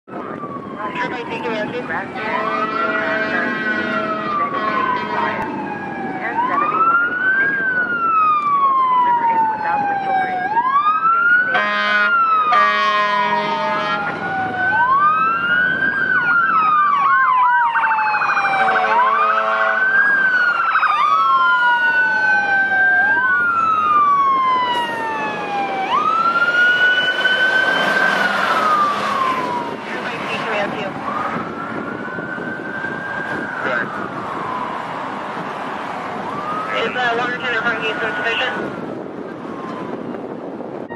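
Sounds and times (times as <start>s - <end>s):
fire truck sirens wailing: 0.1s - 40.9s
air horn blasts: 2.1s - 5.5s, 11.5s - 14.2s, 18.6s - 19.9s.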